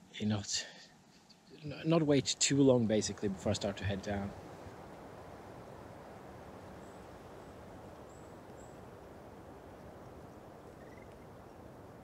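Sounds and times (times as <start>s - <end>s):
low wind rush: 1.7s - 12.0s
faint high-pitched chirps: 10.6s - 11.6s.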